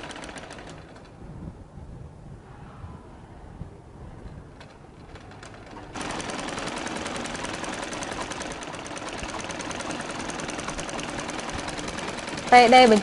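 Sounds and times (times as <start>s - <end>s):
sewing machine running fast: 0.0s - 0.9s, 5.4s - 13.0s.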